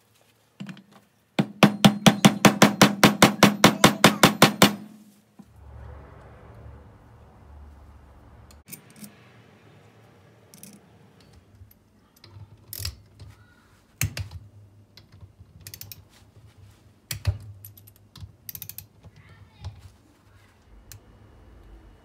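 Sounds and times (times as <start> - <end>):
tool knocking on metal casing: 1.4 - 4.9
ratchet wrench clicking: 15.6 - 16.0, 18.5 - 18.9.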